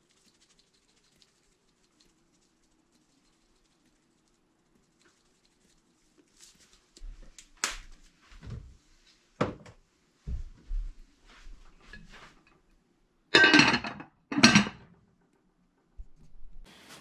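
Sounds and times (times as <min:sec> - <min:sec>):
kitchen items clicking and knocking: 0:13.4 - 0:15.0.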